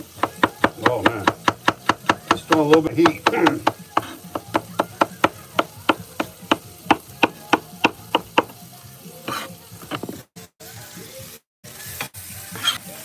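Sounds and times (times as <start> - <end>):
knife chopping on plastic board: 0.1 - 8.5.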